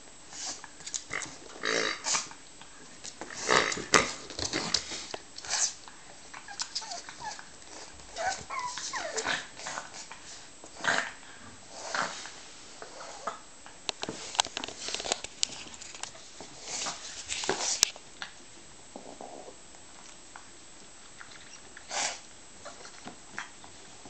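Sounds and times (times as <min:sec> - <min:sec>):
dog growling and snorting: 0:03.3 - 0:04.8, 0:08.1 - 0:10.0, 0:10.8 - 0:12.3, 0:18.9 - 0:19.6.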